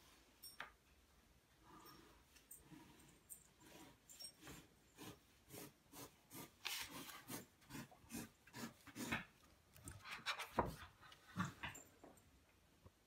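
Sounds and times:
pencil scratching on paper: 3.6s - 11.1s.

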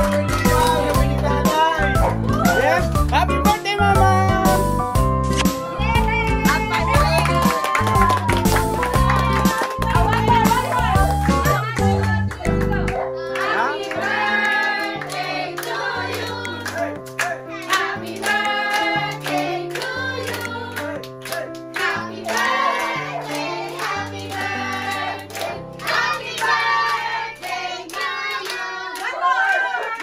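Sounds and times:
music with low bass notes: 0.0s - 12.9s
group singing birthday song: 12.8s - 29.4s.

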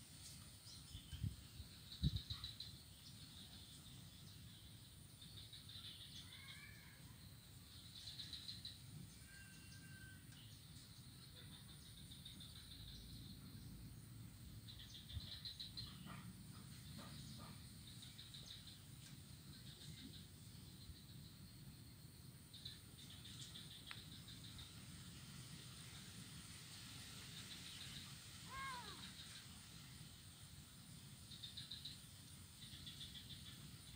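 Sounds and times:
low steady rumble: 10.4s - 33.9s
birds chirping: 27.0s - 29.6s
whistled bird calls: 27.3s - 29.5s.

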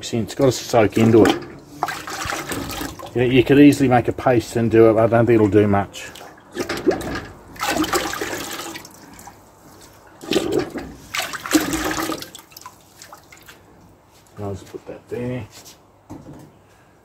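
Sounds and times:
slurry sloshing in metal bucket: 0.4s - 3.3s, 6.0s - 13.6s.

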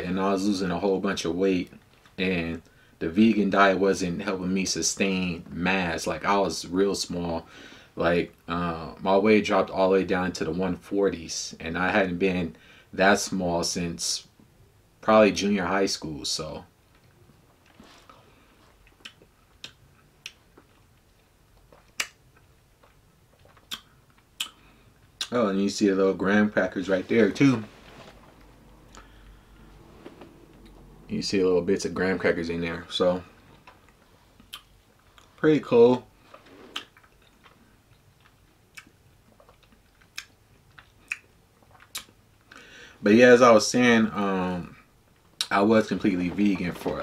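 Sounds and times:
person chewing: 17.6s - 25.3s, 33.4s - 35.4s, 36.2s - 42.2s
wet mouth clicks and smacks: 21.6s - 24.6s, 34.4s - 35.3s, 38.2s - 42.2s.

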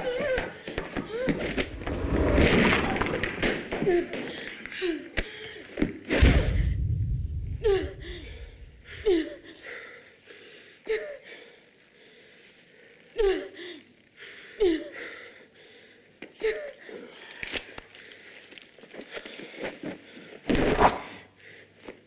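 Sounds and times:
heavy thump: 6.2s - 9.1s.

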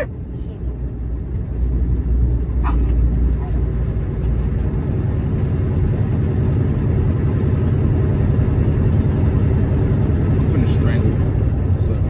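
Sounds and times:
road noise: 0.0s - 12.0s
truck engine low rumble: 0.0s - 12.0s.

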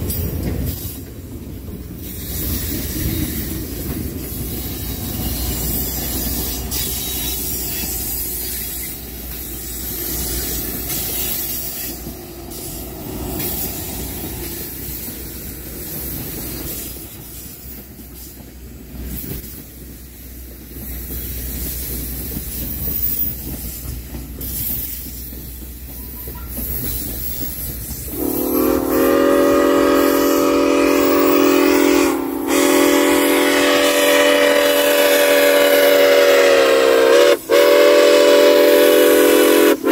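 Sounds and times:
wheels clicking over rail joints: 0.0s - 28.6s
train cars rumbling past: 0.0s - 39.9s
steam whistle chord: 28.1s - 39.9s.

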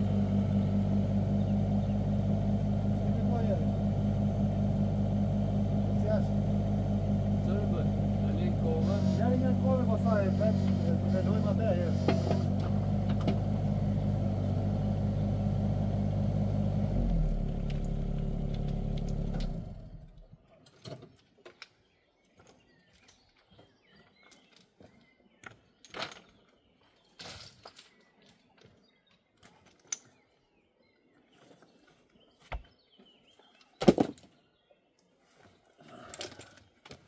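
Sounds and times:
excavator diesel engine running: 0.0s - 20.2s.

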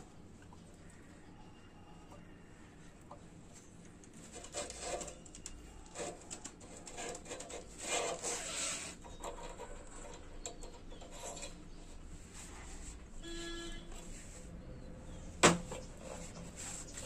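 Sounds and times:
metal rubbing and scraping: 4.2s - 13.2s, 15.6s - 17.0s.

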